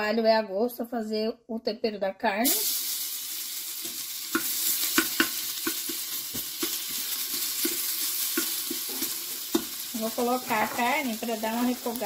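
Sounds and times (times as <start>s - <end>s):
garlic sizzling in hot oil: 2.4s - 12.0s.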